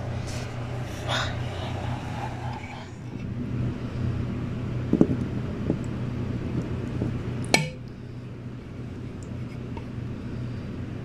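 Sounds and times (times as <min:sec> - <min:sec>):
low hum: 0:00.0 - 0:11.0
ladle knocking: 0:07.0 - 0:07.9.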